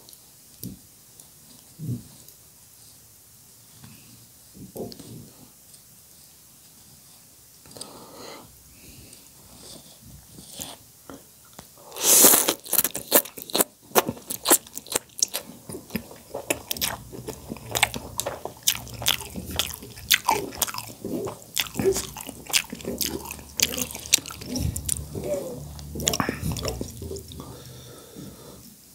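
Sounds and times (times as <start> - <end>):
person slurping noodles: 11.9 - 13.2, 15.7 - 28.0
wet chewing and mouth smacks: 12.0 - 27.5.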